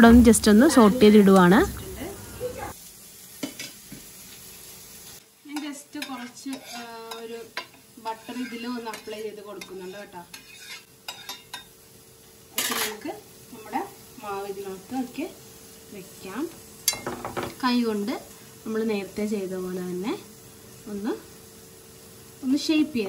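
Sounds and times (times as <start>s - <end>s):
vegetables sizzling in a pan: 0.0s - 23.0s
spatula scraping a pan: 5.5s - 11.8s.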